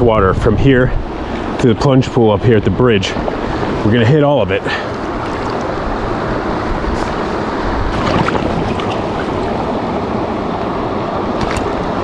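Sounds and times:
brook flowing over riffles: 3.3s - 10.2s.

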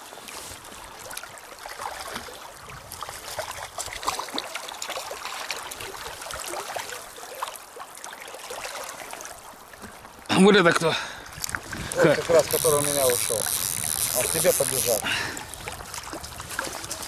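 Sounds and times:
river current gurgling and splashing: 0.0s - 17.0s
fish splashing at the surface: 3.1s - 9.5s.

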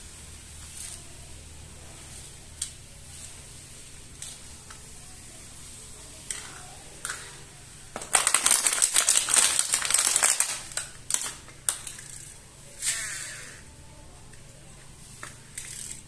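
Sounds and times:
plastic packaging crackling: 7.9s - 12.4s
plastic toys clicking: 8.0s - 13.5s, 15.2s - 16.0s.

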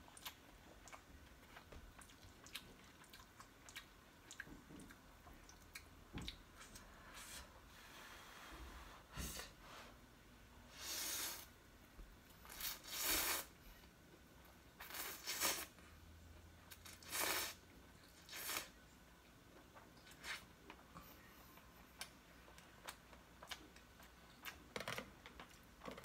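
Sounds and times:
chewing: 0.1s - 6.7s
noodles being slurped: 12.4s - 13.5s, 16.8s - 18.8s.

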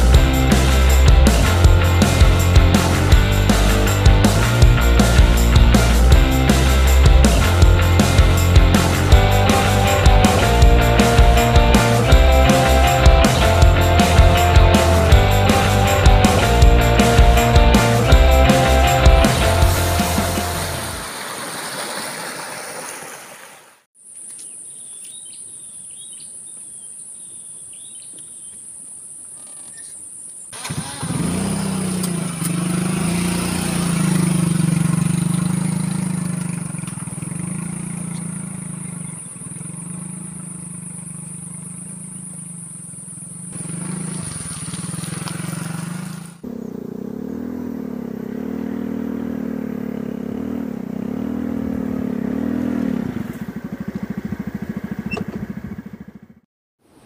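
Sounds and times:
motor scooter engine running: 0.0s - 21.0s, 30.6s - 56.4s
bird chirps: 24.2s - 30.6s, 36.9s - 44.0s.

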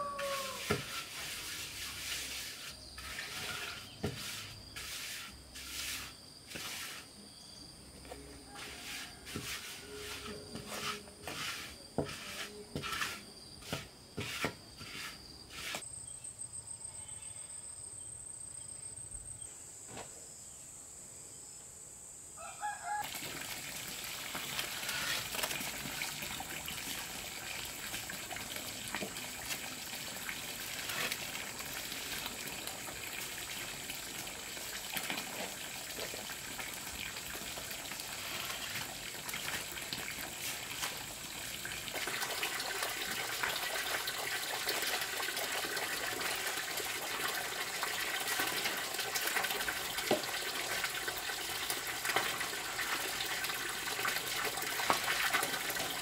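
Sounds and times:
blocks knocking and scraping: 3.0s - 5.0s, 8.6s - 15.8s
running water: 23.0s - 56.0s.

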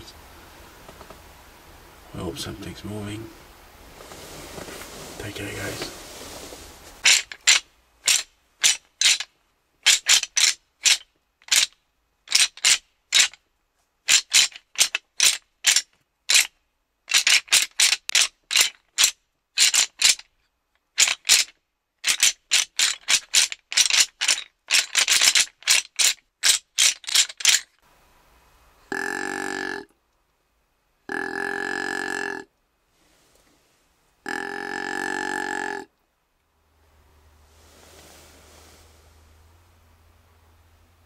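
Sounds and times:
rattling antlers clacking: 4.5s - 13.5s, 14.1s - 27.8s
deer grunt call: 28.8s - 30.0s, 31.0s - 32.5s, 34.2s - 35.9s.

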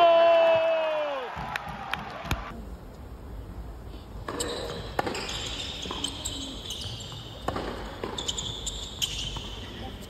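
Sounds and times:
tennis ball struck by rackets: 4.3s - 5.3s, 7.4s - 8.2s.

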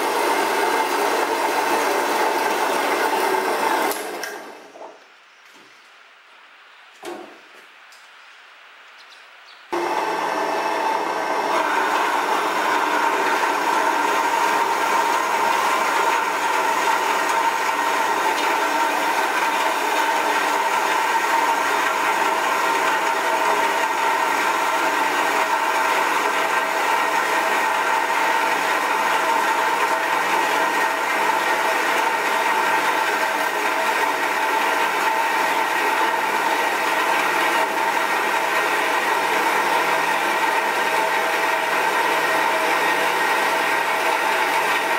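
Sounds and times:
bandsaw cutting metal: 0.0s - 4.6s, 9.8s - 44.9s
motor whine: 9.8s - 44.9s.

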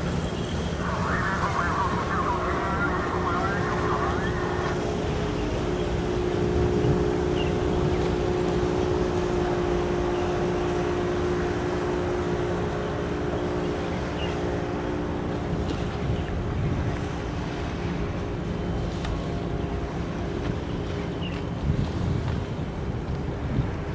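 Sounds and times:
engine hum: 0.0s - 23.9s
wind on microphone: 0.8s - 9.6s, 15.2s - 18.4s, 20.1s - 23.9s.

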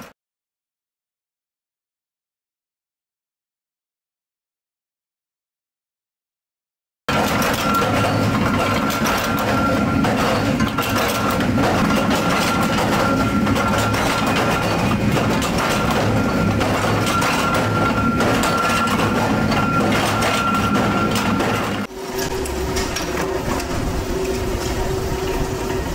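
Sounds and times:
metallic clatter of machinery: 7.1s - 25.9s
thin steady whine: 7.6s - 25.9s.

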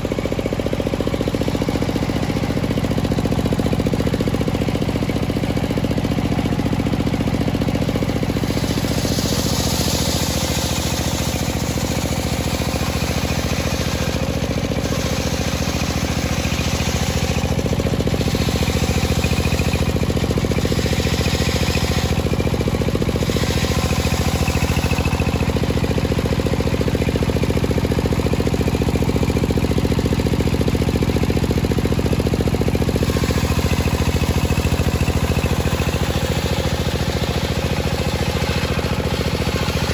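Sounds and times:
saw blade cutting wood: 6.9s - 28.6s, 29.9s - 39.9s
circular saw humming: 8.2s - 27.3s.

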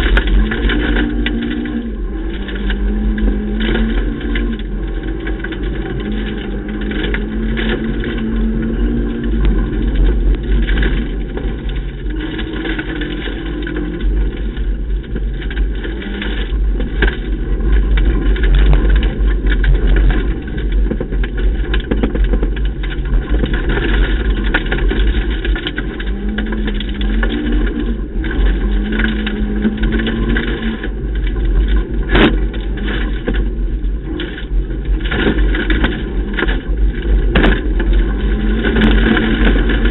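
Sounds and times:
heavy road rumble: 0.0s - 39.9s
rally car engine revving: 0.0s - 39.9s.

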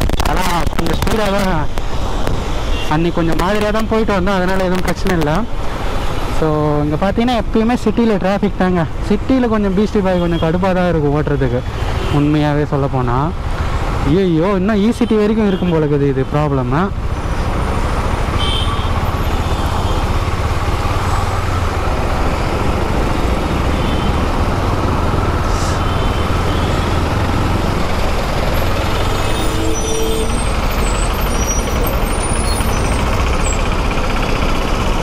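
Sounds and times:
heavy city traffic rumble: 0.0s - 35.0s
motorcycle engine: 17.0s - 35.0s.

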